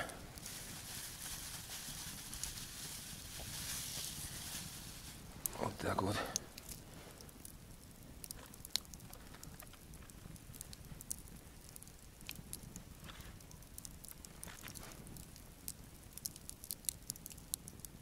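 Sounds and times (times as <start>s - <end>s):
meat laid on grill rustling: 0.0s - 7.4s
campfire crackling and popping: 0.0s - 18.0s.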